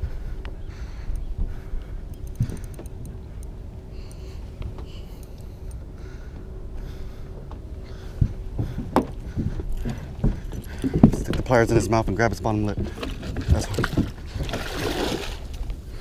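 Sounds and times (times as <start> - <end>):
wind rumbling on microphone: 0.0 - 3.9.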